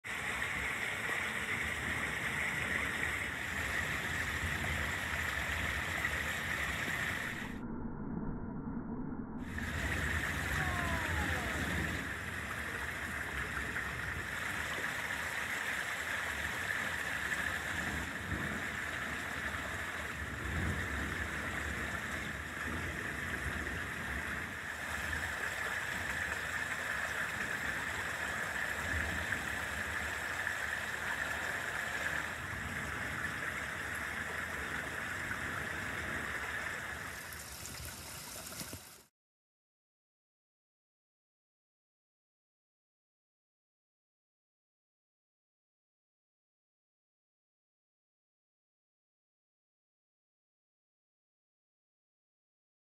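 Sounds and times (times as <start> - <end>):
rain falling: 0.1 - 7.5, 9.5 - 39.1
low thunder rumble: 3.4 - 14.6, 17.8 - 24.7.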